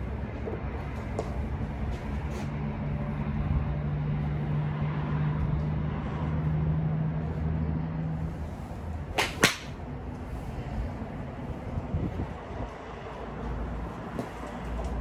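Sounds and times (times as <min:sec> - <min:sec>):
wind rumbling on microphone: 0:00.0 - 0:15.0
golf club swishing: 0:08.2 - 0:10.6
golf club striking ball: 0:09.1 - 0:09.8.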